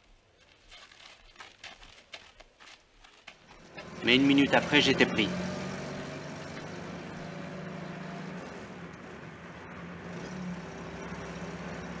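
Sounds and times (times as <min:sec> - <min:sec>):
road noise: 0:03.3 - 0:12.0
car engine running: 0:03.6 - 0:12.0.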